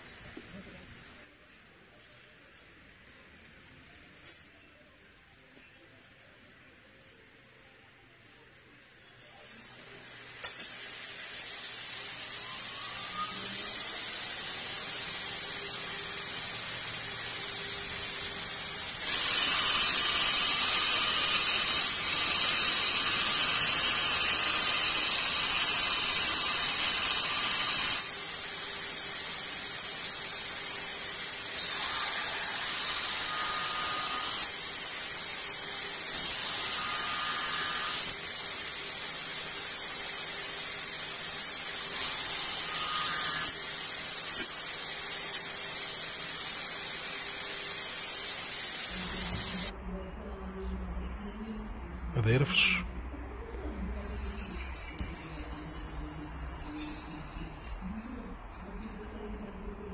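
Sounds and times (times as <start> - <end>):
belt grinder grinding metal: 9.5 - 49.7.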